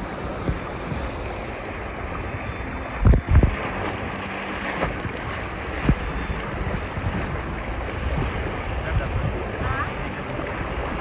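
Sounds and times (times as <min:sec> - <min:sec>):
river current rushing and splashing: 0:00.0 - 0:11.0
wind on microphone: 0:00.0 - 0:11.0.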